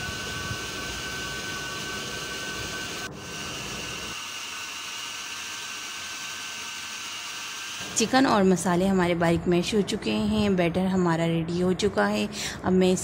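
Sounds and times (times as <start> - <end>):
food processor motor whine: 0.0 - 8.2.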